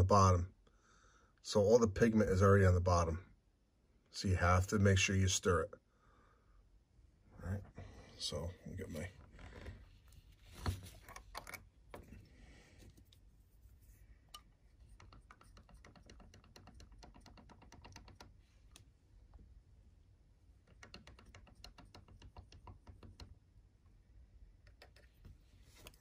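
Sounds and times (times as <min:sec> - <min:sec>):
stirrer clicking inside jar: 0:14.3 - 0:18.4, 0:20.6 - 0:23.3.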